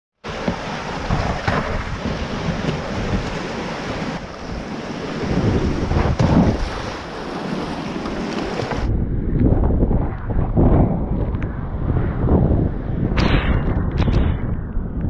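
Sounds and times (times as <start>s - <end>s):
kayak splashing into water: 0.3s - 8.9s
wind buffeting microphone: 0.3s - 15.0s.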